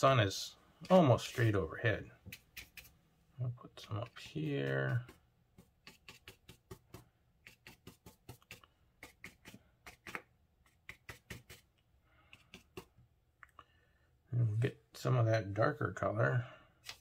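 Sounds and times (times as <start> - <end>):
paintbrush dabbing on paper: 0.8 - 3.0, 3.8 - 13.0.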